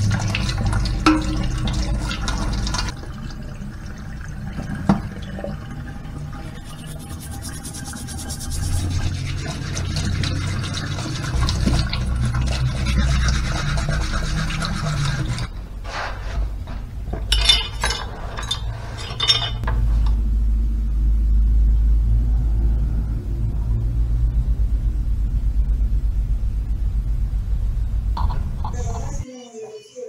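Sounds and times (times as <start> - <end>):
tap running into metal sink: 0.2 - 2.9
metal spoon rubbed under water: 6.4 - 16.4
spoon clinking on stone countertop: 17.3 - 19.7
low rumble: 19.6 - 29.2.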